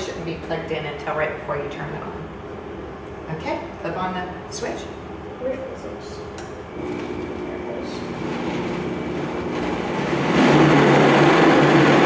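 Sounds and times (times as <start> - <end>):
blender motor blending: 6.8 - 12.0.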